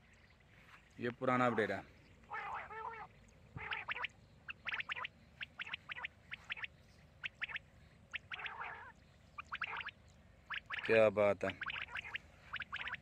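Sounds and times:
quail chirping: 0.0s - 13.0s.

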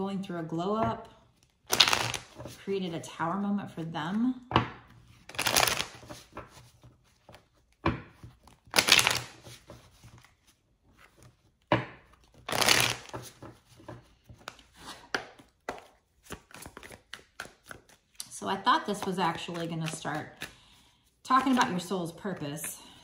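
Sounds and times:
cards being riffle-shuffled: 1.4s - 2.6s, 5.0s - 21.9s.

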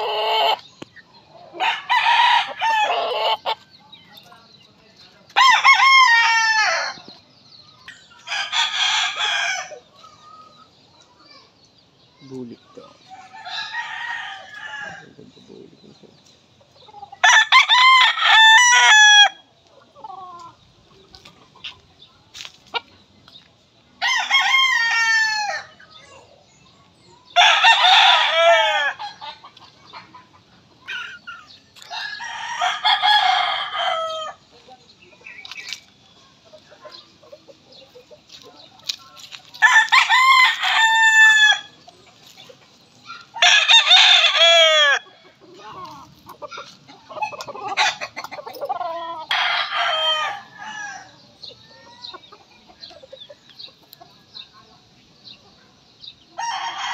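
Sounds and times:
roosters crowing: 0.0s - 3.7s, 5.3s - 7.2s, 8.1s - 10.3s, 12.6s - 15.5s, 16.8s - 20.6s, 24.0s - 25.9s, 27.3s - 30.1s, 30.8s - 34.5s, 39.2s - 42.4s, 43.1s - 53.2s, 56.3s - 56.9s.

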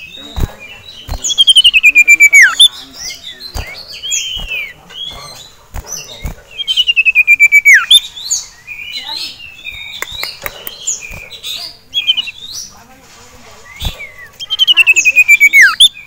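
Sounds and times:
bird chirps and trills: 0.0s - 16.0s.

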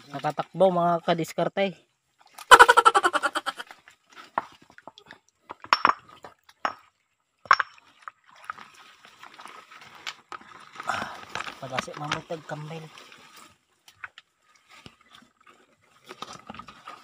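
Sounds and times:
stream trickling and splashing: 0.0s - 17.0s
stones clinking together: 5.5s - 7.8s.

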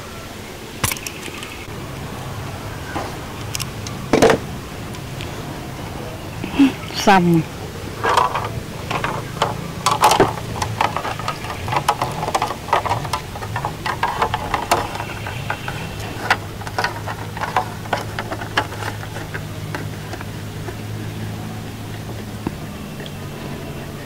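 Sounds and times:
steady low hum: 0.0s - 24.0s
hands working crafting materials: 8.0s - 21.2s.

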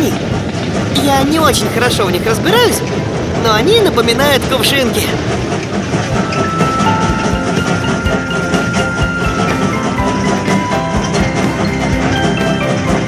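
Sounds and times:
music with percussive beat: 6.1s - 13.0s.

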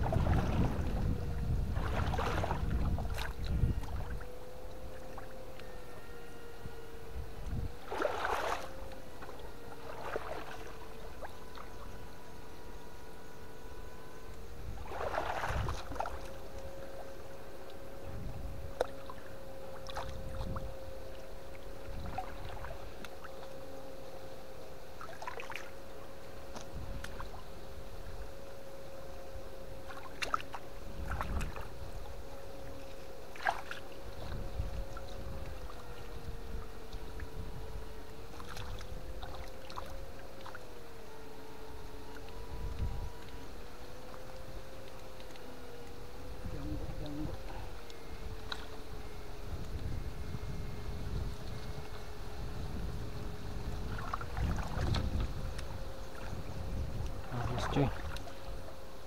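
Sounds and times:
water splashing: 0.0s - 4.3s, 7.8s - 11.8s, 14.8s - 16.4s, 25.0s - 25.7s, 33.3s - 35.8s, 53.6s - 56.4s, 57.1s - 58.4s.

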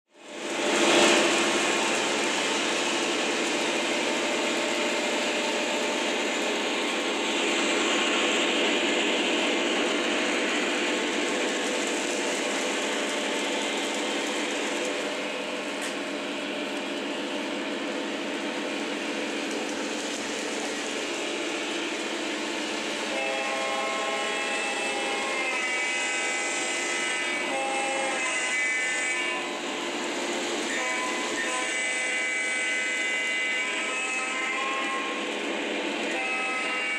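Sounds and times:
model train wheels and motors rumbling: 0.1s - 36.9s
electronic train horn blasts: 23.0s - 29.9s, 30.6s - 35.3s, 36.0s - 36.9s.

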